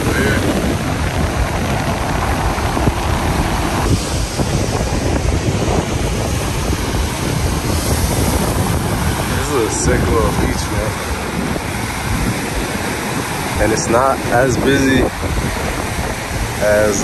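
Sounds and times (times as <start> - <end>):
surf breaking on beach: 0.0 - 17.0
wind buffeting microphone: 0.0 - 17.0.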